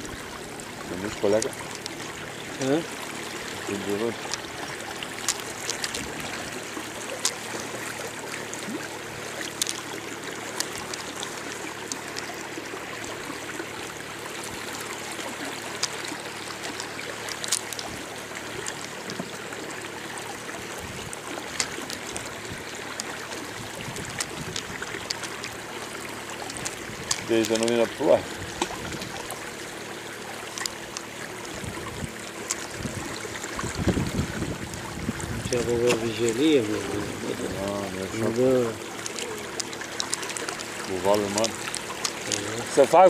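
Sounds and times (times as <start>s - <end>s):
water lapping against boat hull: 0.0s - 43.0s
small clicks and taps: 5.2s - 6.1s, 9.4s - 9.8s, 30.5s - 31.1s, 39.0s - 42.4s.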